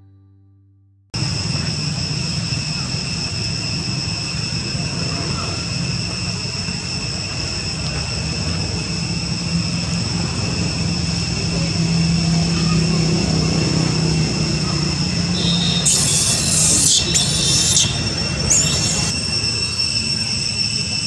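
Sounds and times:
high-pitched whining tones: 0:01.2 - 0:21.0
low engine-like drone: 0:01.2 - 0:21.0.

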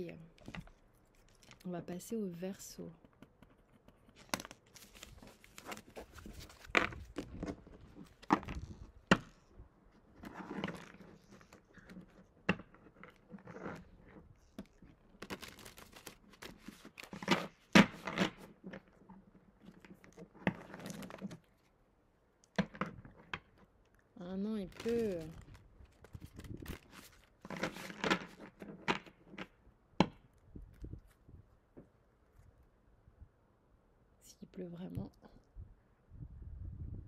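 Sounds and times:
cards being shuffled by hand: 0:02.9 - 0:09.5, 0:10.1 - 0:21.7, 0:24.5 - 0:29.5.

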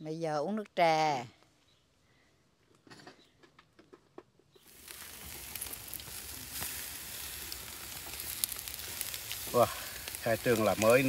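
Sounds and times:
meat sizzling on a charcoal grill: 0:04.6 - 0:11.0.

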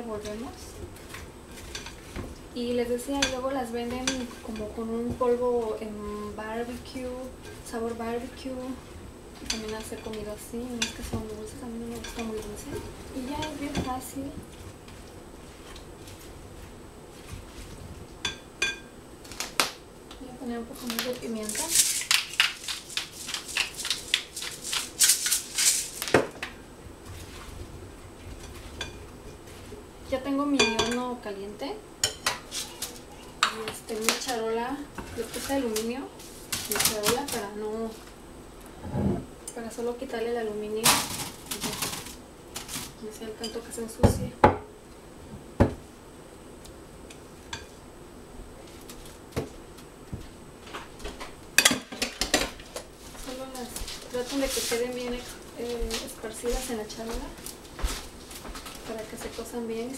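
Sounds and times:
pepper mill grinding: 0:20.8 - 0:26.2
glass bowl clink: 0:30.6 - 0:31.0.

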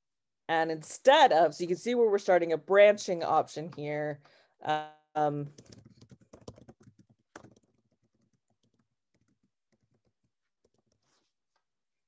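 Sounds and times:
faint keyboard typing: 0:05.4 - 0:11.6.

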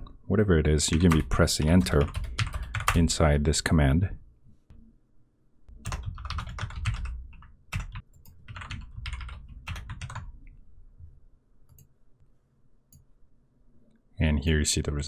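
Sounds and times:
typing on computer keyboard: 0:00.9 - 0:03.0, 0:05.8 - 0:10.3.

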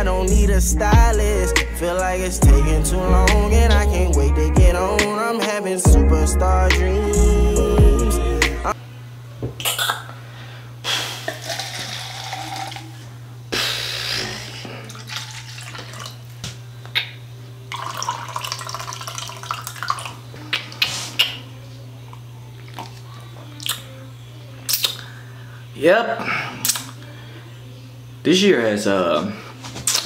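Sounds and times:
low hum: 0:00.0 - 0:05.0, 0:05.9 - 0:09.1
person sipping: 0:10.9 - 0:16.2
juice pouring into plastic cup: 0:11.3 - 0:13.0, 0:14.8 - 0:16.3, 0:17.7 - 0:20.2.

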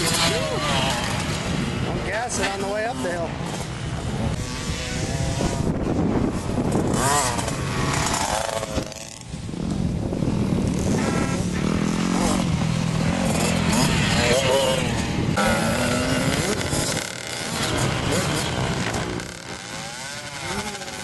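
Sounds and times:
dirt bike engines revving: 0:00.0 - 0:21.0.

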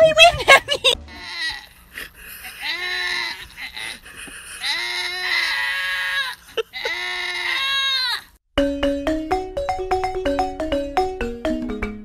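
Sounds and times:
goats bleating: 0:01.1 - 0:01.9, 0:02.5 - 0:04.0, 0:04.6 - 0:08.2.

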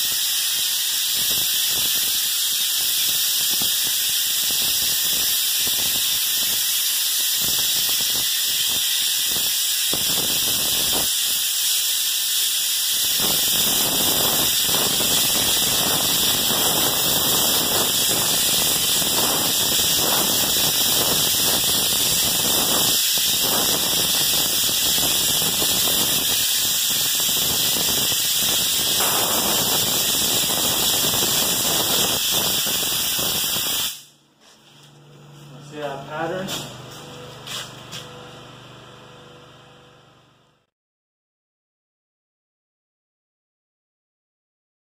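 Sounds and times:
spray gun hissing: 0:00.0 - 0:34.1.

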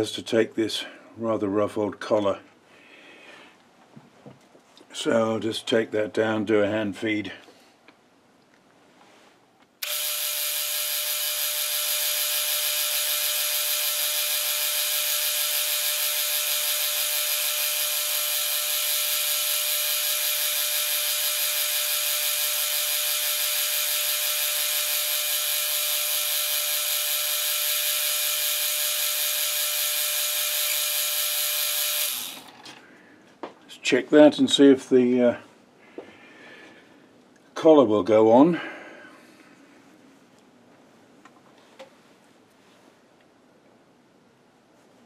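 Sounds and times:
metal lathe whirring: 0:09.8 - 0:32.6.

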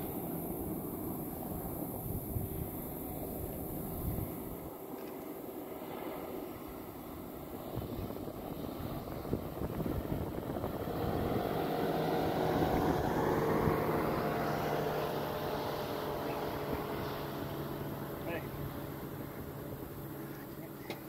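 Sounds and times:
engine passing by: 0:05.8 - 0:21.0.

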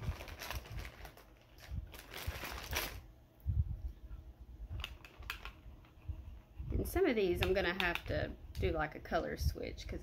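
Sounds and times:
makeup brushes clicking: 0:07.4 - 0:08.2.

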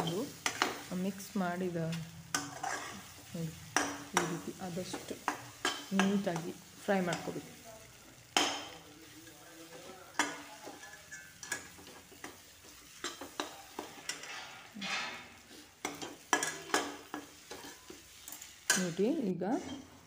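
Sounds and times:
egg sizzling: 0:00.0 - 0:20.0
spatula scraping metal pan: 0:02.3 - 0:03.1, 0:09.8 - 0:18.9.

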